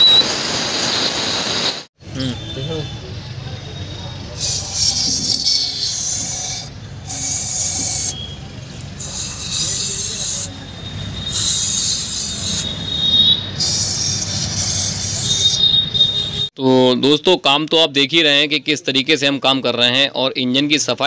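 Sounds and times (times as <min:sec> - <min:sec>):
aerosol spray hissing: 0:04.4 - 0:08.2, 0:09.0 - 0:10.5, 0:11.3 - 0:12.7, 0:13.6 - 0:15.6.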